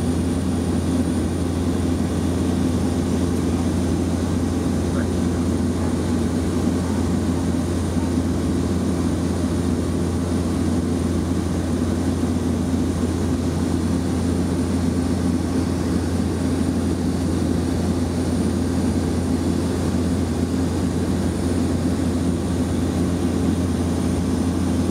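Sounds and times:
propeller aircraft engines droning: 0.0 - 24.9.

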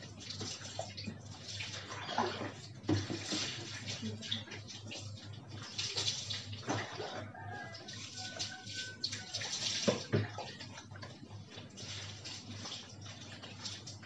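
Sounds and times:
dipper scooping water: 0.0 - 14.0
water splashing on tiled floor: 0.0 - 14.0.

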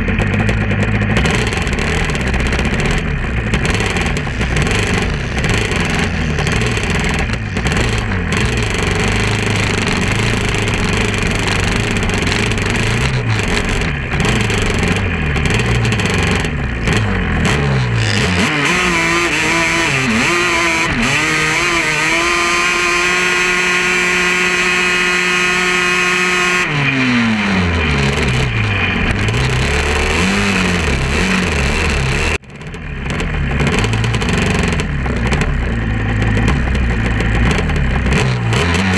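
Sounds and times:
quad engines revving: 0.0 - 38.9.

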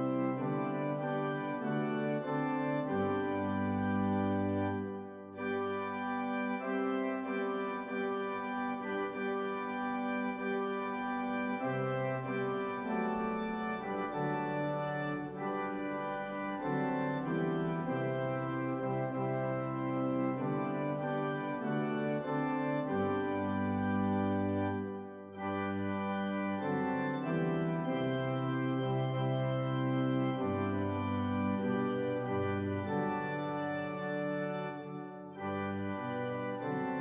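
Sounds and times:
organ chords: 0.0 - 37.0.

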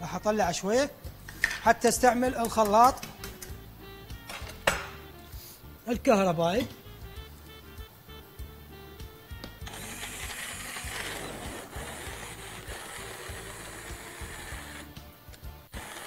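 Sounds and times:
stick blender whirring: 9.6 - 15.0, 15.6 - 16.0.

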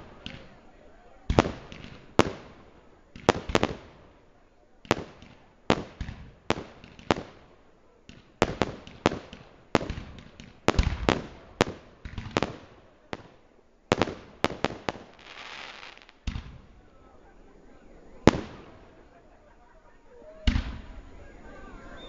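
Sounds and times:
hissing crackle of fireworks: 0.0 - 19.7, 20.4 - 21.7
fireworks bangs with echo: 1.3 - 4.1, 4.8 - 16.7, 18.2 - 19.0, 20.4 - 20.9.

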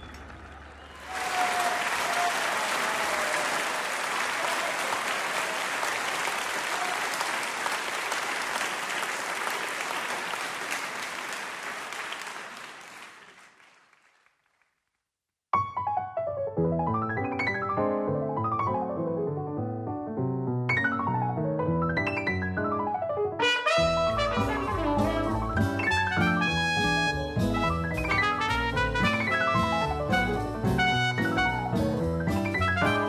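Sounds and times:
audience applauding: 0.0 - 14.8.

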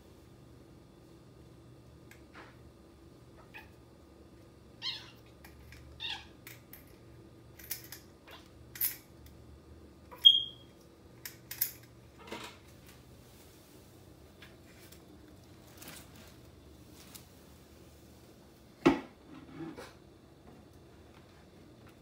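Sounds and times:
kitten squeaking: 4.8 - 5.2, 10.2 - 10.6.

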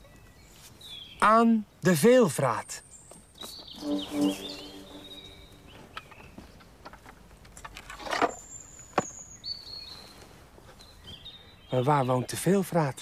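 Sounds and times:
high steady whistling tones: 3.6 - 5.9.

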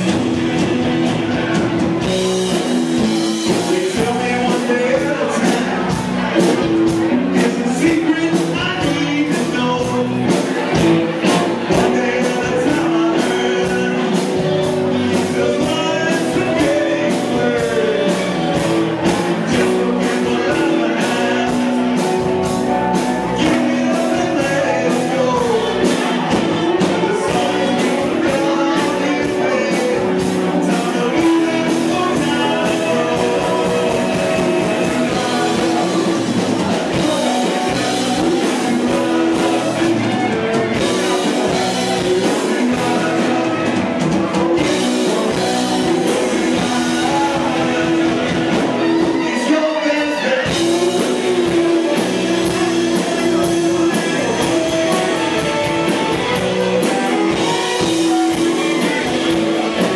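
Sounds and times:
drums: 0.0 - 59.9
electric guitars: 0.0 - 59.9
keyboards: 0.0 - 59.9
lead vocal singing: 0.0 - 59.9.

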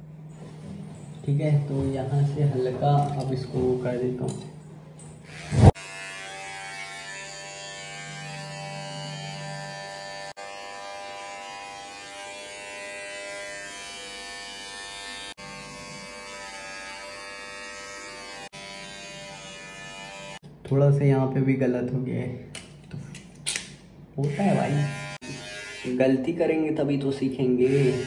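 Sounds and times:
hair trimmer buzzing: 5.2 - 20.4, 24.2 - 26.0, 27.6 - 28.0.

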